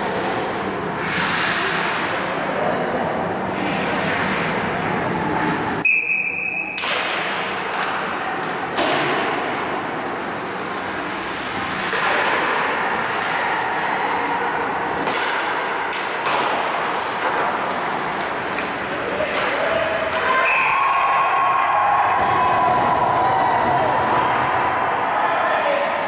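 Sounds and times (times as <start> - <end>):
skates scraping ice: 0.0 - 3.0, 7.5 - 20.2
referee whistle blast: 5.8 - 6.8
hockey sticks knocking: 6.8 - 10.4, 14.9 - 20.2.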